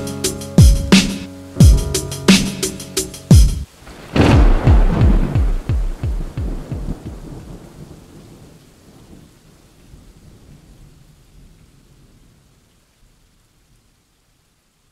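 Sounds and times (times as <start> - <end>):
steady rain: 0.0 - 14.9
thunder rumbling: 3.7 - 9.3.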